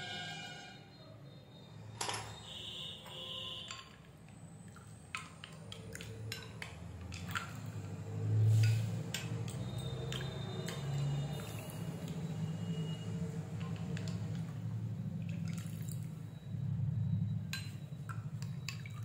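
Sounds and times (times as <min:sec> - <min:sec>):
liquid sloshing: 0:04.6 - 0:19.0.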